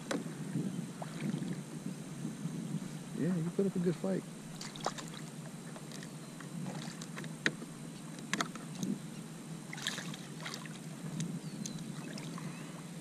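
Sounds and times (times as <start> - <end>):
low wash of water: 0.0 - 2.4, 9.6 - 11.0
sharp water splashes: 4.5 - 5.3, 9.7 - 10.8.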